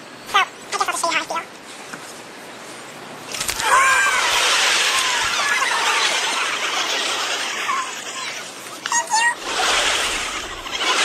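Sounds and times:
sped-up crowd screaming and cheering: 0:03.6 - 0:11.0.

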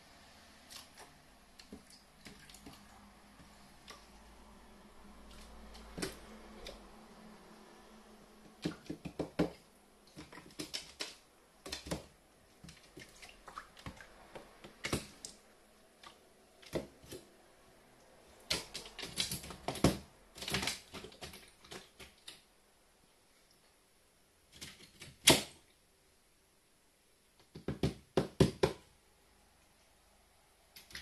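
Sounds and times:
small water splashes: 0:00.6 - 0:07.2, 0:08.4 - 0:17.4
beak and feet tapping plastic: 0:08.4 - 0:15.4, 0:18.4 - 0:22.5.

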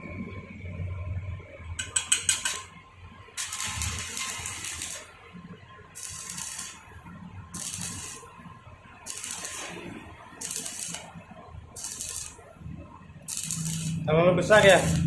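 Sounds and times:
welding arc crackling and hissing: 0:01.8 - 0:02.8, 0:03.4 - 0:05.3, 0:05.9 - 0:15.0.

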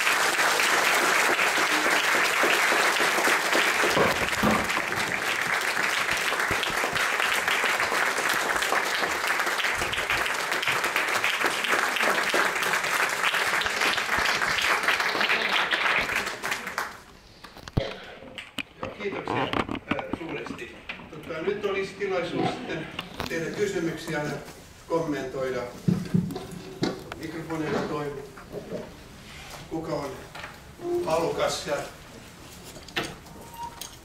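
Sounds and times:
audience applauding: 0:00.0 - 0:17.1.

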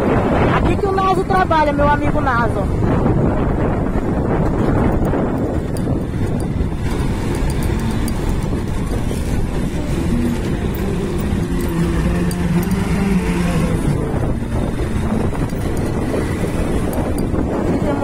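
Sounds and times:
surrounding traffic: 0:00.0 - 0:18.0
wind on microphone: 0:00.0 - 0:18.0
motorcycle engine: 0:03.0 - 0:18.0
steady humming note: 0:06.2 - 0:18.0.

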